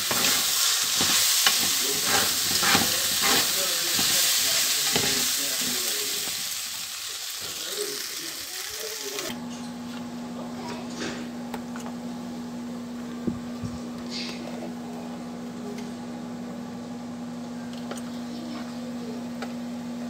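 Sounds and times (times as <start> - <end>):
kitchen appliance humming: 0.0 - 20.0.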